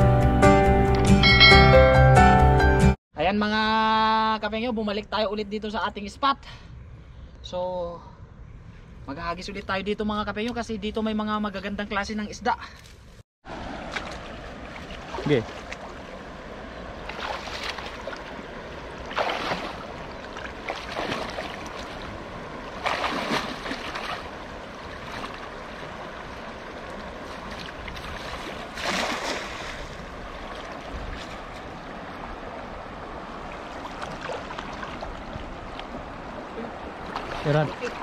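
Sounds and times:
shallow river water running: 13.4 - 38.0
water splashes: 13.4 - 38.0.

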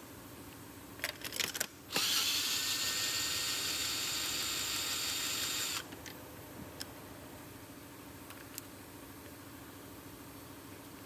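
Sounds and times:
drill whining: 1.9 - 5.9.

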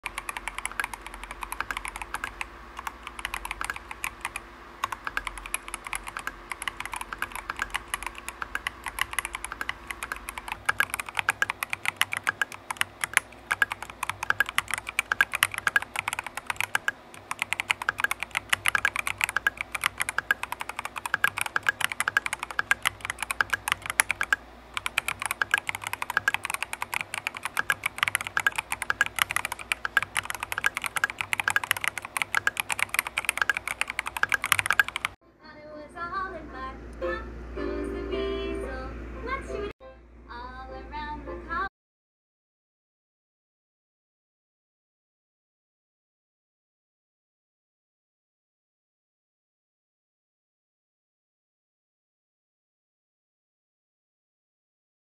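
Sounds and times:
typing on mechanical keyboard: 0.0 - 35.2.

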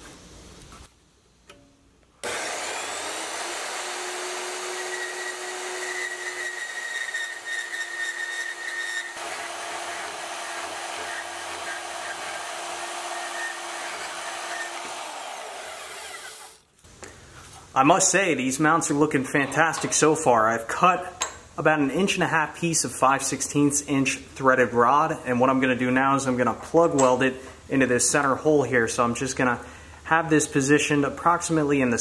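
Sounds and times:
band saw cutting steel: 2.2 - 16.6.

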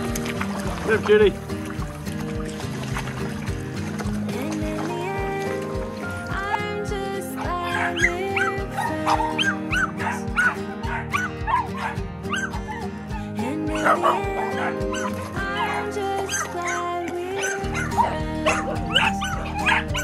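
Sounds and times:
music with steady beat: 0.0 - 20.0
small dog yapping: 7.8 - 12.8, 13.7 - 16.8, 17.4 - 20.0.

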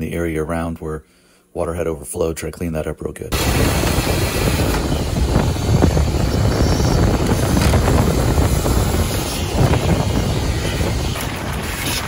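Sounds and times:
shop vacuum sucking debris: 3.3 - 12.0.

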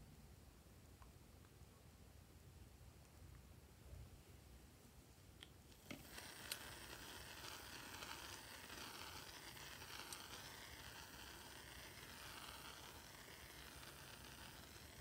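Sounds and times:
aerosol can spraying: 5.8 - 15.0.

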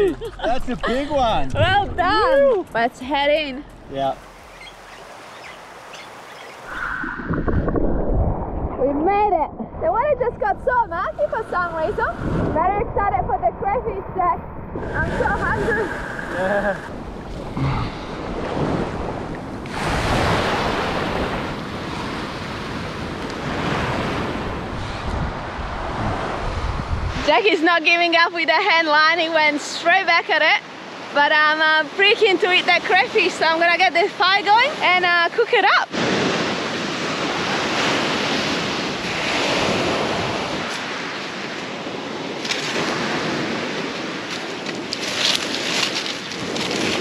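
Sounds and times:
wind rumbling on microphone: 0.0 - 27.5
surf washing on beach: 3.9 - 47.0.

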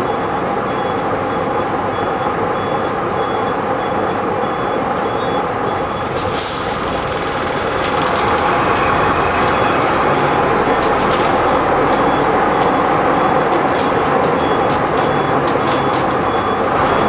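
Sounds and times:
bus diesel engine running: 0.0 - 17.0
compressed air hiss: 6.1 - 7.1.

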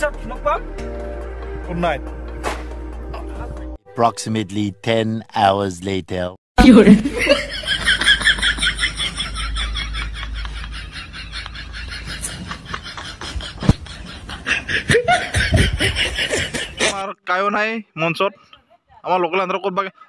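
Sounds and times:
rapid laughter: 6.7 - 17.0.

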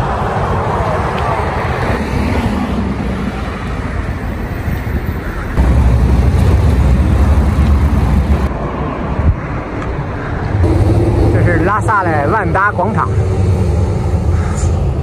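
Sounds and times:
passing road traffic: 0.0 - 15.0
heavy low rumble: 5.5 - 8.6, 10.2 - 15.0.

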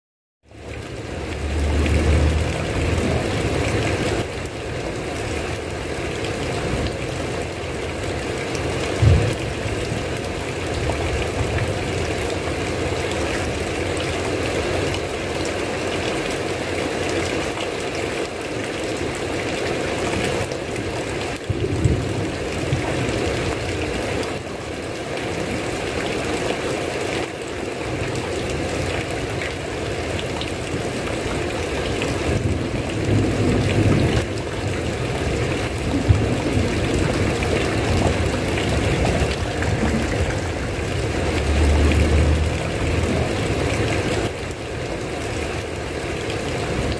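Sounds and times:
heavy rain: 0.5 - 46.9
thunder rumbles: 8.9 - 12.0, 21.4 - 23.4, 32.4 - 43.7.

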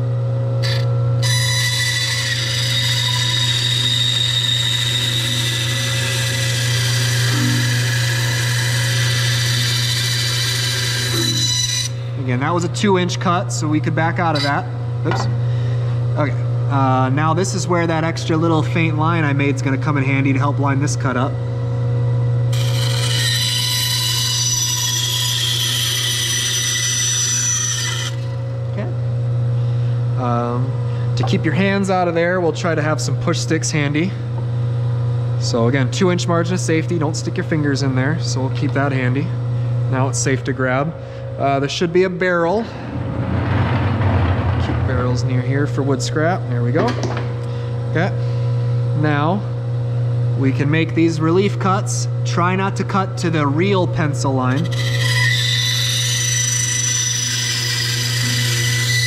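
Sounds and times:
band saw motor hum: 0.0 - 59.0
band saw cutting wood: 0.6 - 13.2, 22.5 - 28.5, 54.2 - 59.0
saw motor humming: 0.6 - 15.3, 22.5 - 29.0, 53.4 - 59.0.

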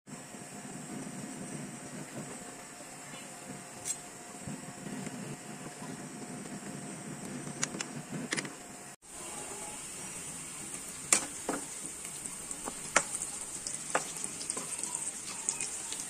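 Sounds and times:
onions sizzling in hot oil: 9.0 - 16.0.

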